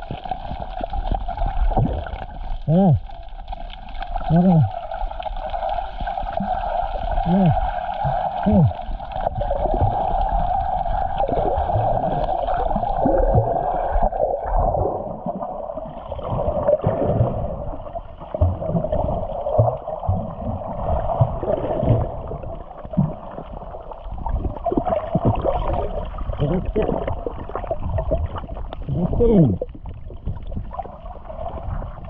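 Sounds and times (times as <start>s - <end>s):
water swishing and gurgling underwater: 0.0s - 32.0s
low underwater thumps: 11.5s - 12.3s, 16.2s - 23.4s.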